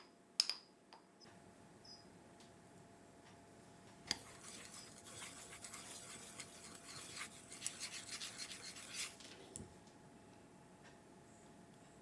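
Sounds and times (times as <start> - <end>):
chopsticks scraping ceramic dish: 4.1 - 9.2.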